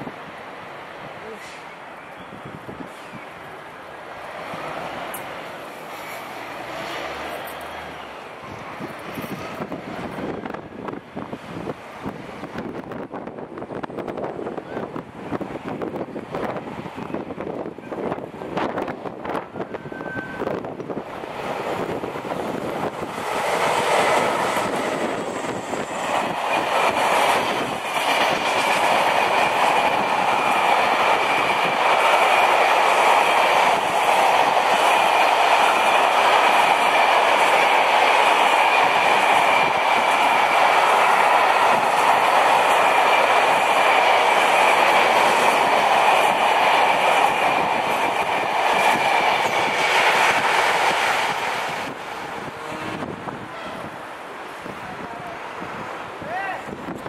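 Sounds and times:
train wheels clattering on rails: 0:18.6 - 0:52.5.

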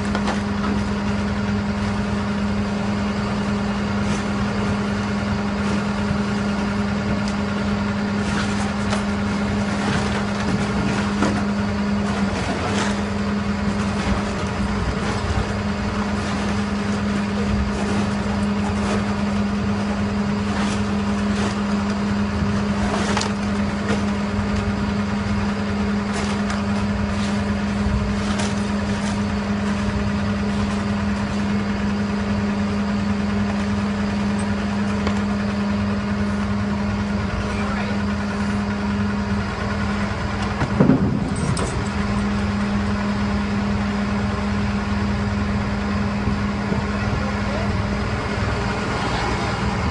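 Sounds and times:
diesel engine humming: 0:00.0 - 0:49.9.

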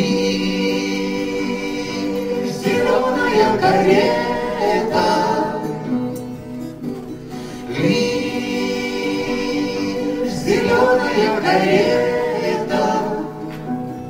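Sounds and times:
group of voices singing: 0:00.0 - 0:06.3, 0:07.3 - 0:14.0
acoustic guitars playing: 0:00.0 - 0:14.0.

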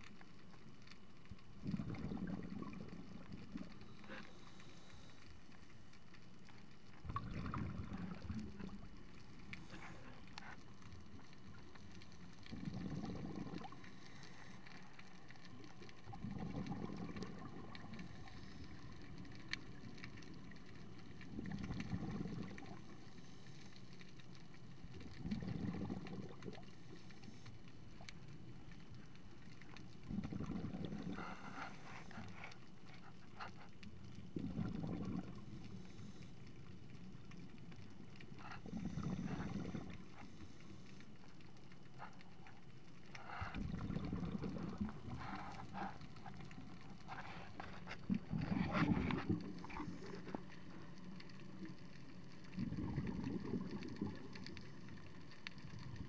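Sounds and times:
faint ticking and crackling: 0:00.0 - 0:56.0
diver exhaling bubbles: 0:01.6 - 0:04.5, 0:07.0 - 0:08.9, 0:12.4 - 0:14.1, 0:15.9 - 0:18.5, 0:21.3 - 0:22.9, 0:25.0 - 0:26.8, 0:30.0 - 0:32.3, 0:34.2 - 0:36.2, 0:38.6 - 0:40.4, 0:43.2 - 0:50.7, 0:52.5 - 0:54.9.

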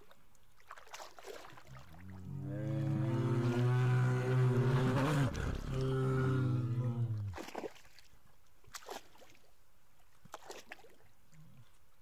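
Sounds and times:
water splashing: 0:00.0 - 0:09.6, 0:10.2 - 0:11.1
bear roaring: 0:02.3 - 0:07.4.

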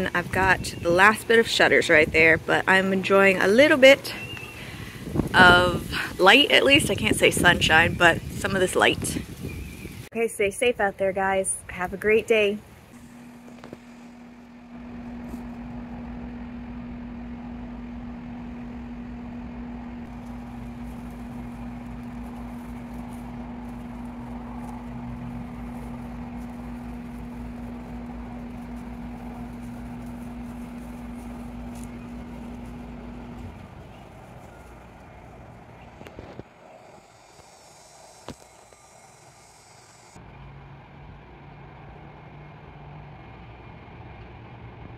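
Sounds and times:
low mechanical hum: 0:00.0 - 0:44.9
low rumble: 0:12.9 - 0:42.1.

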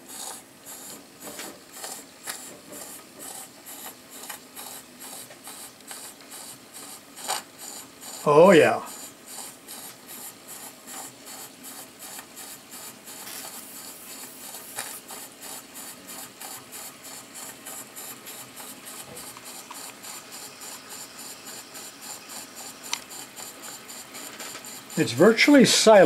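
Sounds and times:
faint steam hiss: 0:23.7 - 0:26.0
model steam engine beating: 0:24.9 - 0:26.0.

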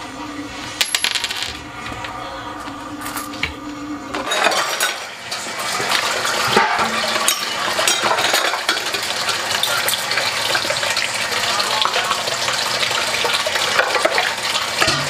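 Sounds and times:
dishes and utensils clinking: 0:04.1 - 0:10.9, 0:13.3 - 0:15.0
tap water running into sink: 0:05.3 - 0:15.0.

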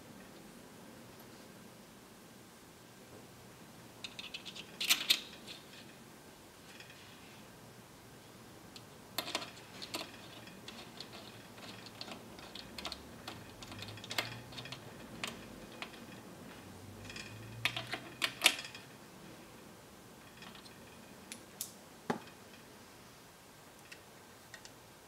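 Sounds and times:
small metal parts clicking: 0:04.0 - 0:06.0, 0:08.8 - 0:16.3, 0:17.0 - 0:18.9, 0:20.2 - 0:22.7.

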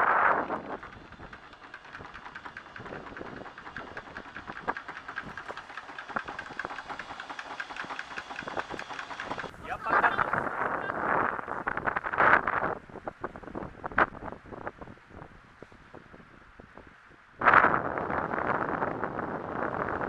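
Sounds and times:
anchor chain rattling: 0:00.6 - 0:11.7.

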